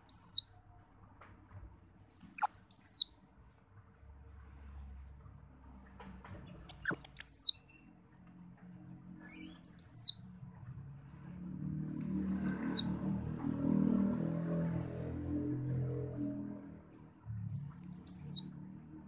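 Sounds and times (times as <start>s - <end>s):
sunbird chirping: 0.0s - 0.6s, 2.1s - 3.6s, 6.5s - 8.0s, 9.1s - 10.6s, 11.8s - 13.2s, 17.4s - 18.6s.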